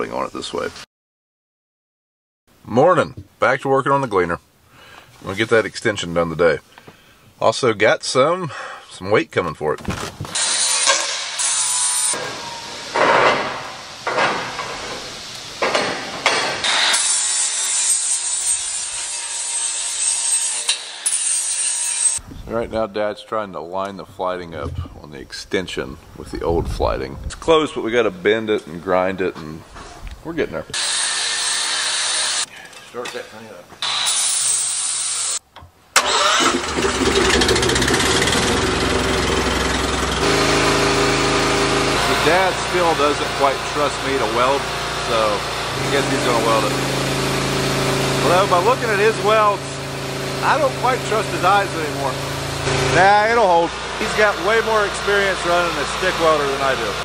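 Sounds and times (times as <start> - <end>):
angle grinder grinding metal: 10.3 - 22.2, 30.8 - 32.5, 33.8 - 35.4, 36.4 - 57.0
engine cranking and running: 36.0 - 57.0.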